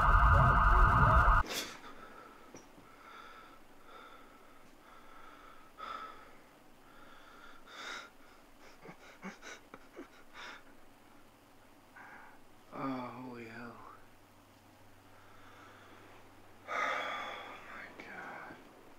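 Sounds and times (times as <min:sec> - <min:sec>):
shrill electronic alarm tone: 0:00.0 - 0:01.4
man breathing shakily: 0:15.2 - 0:18.5.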